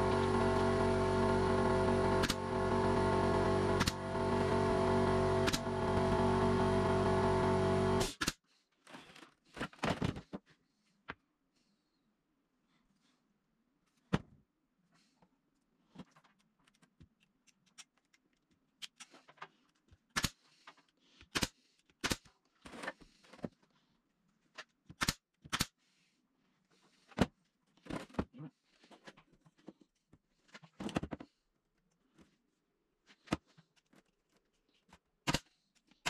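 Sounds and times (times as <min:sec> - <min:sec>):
nail gun clacking: 0:03.7 - 0:04.0.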